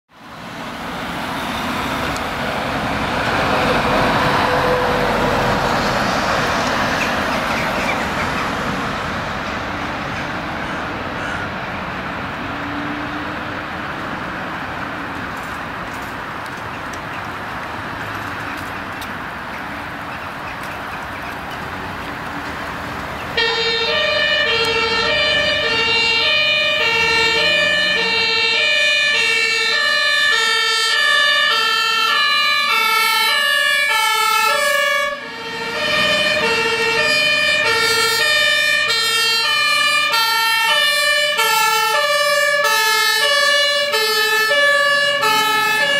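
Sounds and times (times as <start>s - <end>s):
road traffic noise: 0.1s - 45.9s
two-tone fire engine siren: 0.2s - 15.2s, 23.0s - 45.9s
second two-tone siren: 23.4s - 45.9s.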